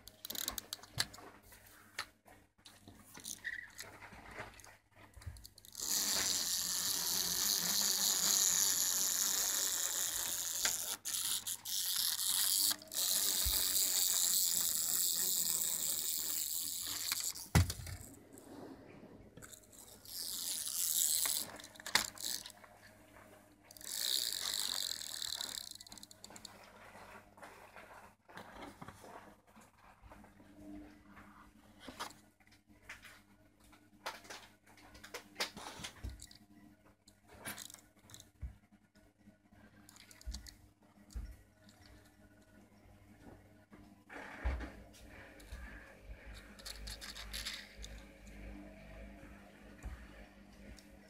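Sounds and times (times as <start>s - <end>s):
clockwork toy motor whirring: 5.6s - 18.1s, 19.4s - 22.5s, 23.7s - 26.5s, 46.4s - 47.9s.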